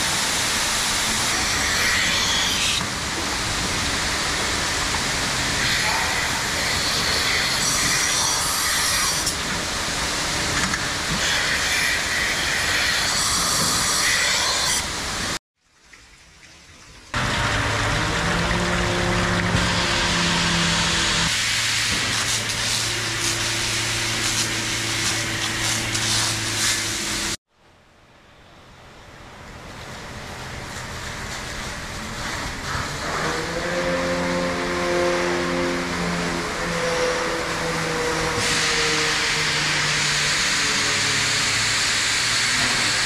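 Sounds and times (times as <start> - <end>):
hiss of air and water: 0.0 - 15.4, 17.1 - 27.4, 38.2 - 43.0
low motor hum: 17.2 - 21.3.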